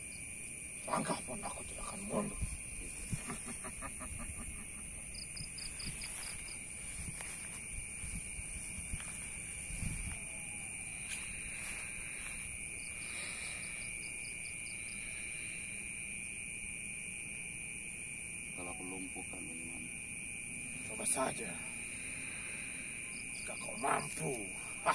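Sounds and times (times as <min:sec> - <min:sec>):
crickets trilling: 0:00.0 - 0:24.9
pulsing insect chirp: 0:00.0 - 0:24.9
soft low thumps and rustles: 0:05.4 - 0:10.3.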